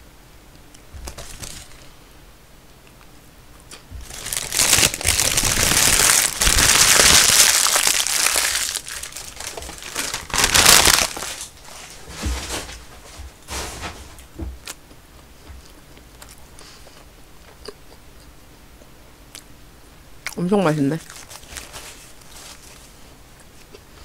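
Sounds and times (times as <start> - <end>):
paper wrapper crinkling: 1.0 - 1.8, 3.7 - 13.2, 21.0 - 23.0.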